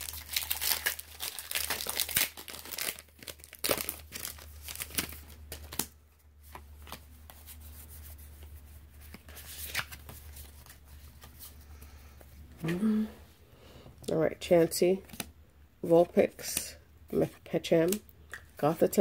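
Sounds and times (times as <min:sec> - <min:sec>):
foil wrapper tearing and crinkling: 0:00.0 - 0:05.9.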